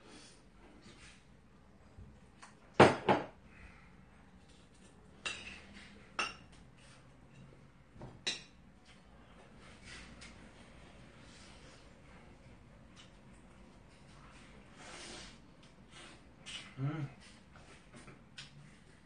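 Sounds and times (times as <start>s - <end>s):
spoon clinking on ceramic bowls: 5.2s - 6.5s.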